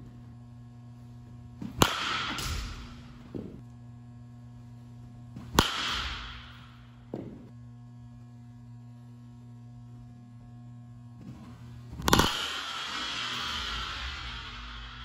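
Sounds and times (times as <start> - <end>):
low electrical hum: 0.0 - 15.0
bat cracking ball: 1.6 - 3.6, 5.4 - 7.5, 11.2 - 15.0.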